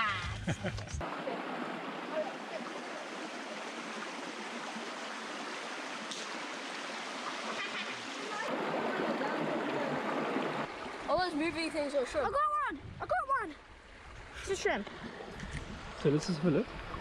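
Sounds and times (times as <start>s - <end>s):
river rushing over stones: 1.0s - 12.4s.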